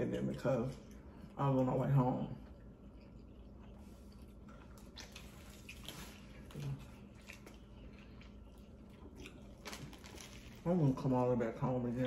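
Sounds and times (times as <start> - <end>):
wet biting and chewing: 2.5 - 10.6.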